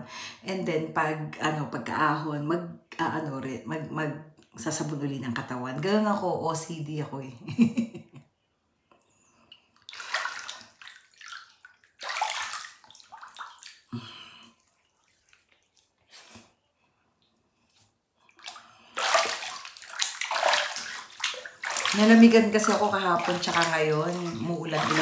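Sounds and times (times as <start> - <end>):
bathwater splashing: 9.5 - 25.0.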